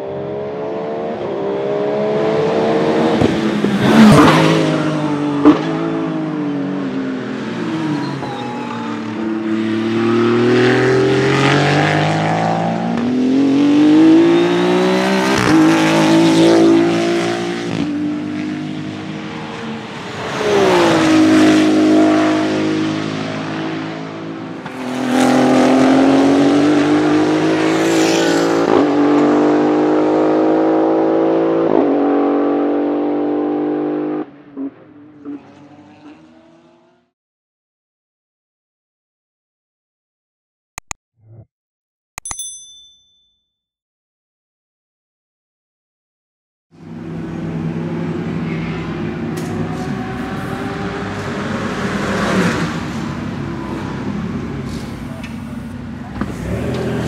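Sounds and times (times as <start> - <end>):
racing engine revving: 56.1 - 57.0.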